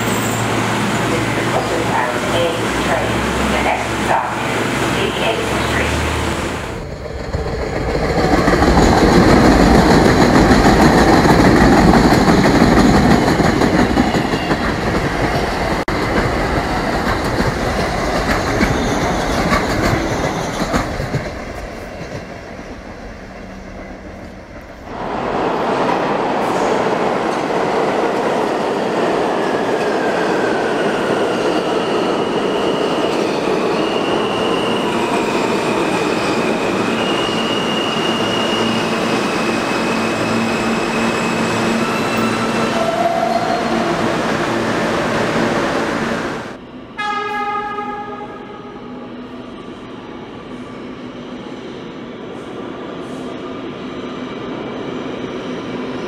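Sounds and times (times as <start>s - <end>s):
high squealing brakes: 0.0s - 1.3s, 30.3s - 44.3s
subway train rumbling past: 0.0s - 56.0s
subway train whine slowing: 0.0s - 56.0s.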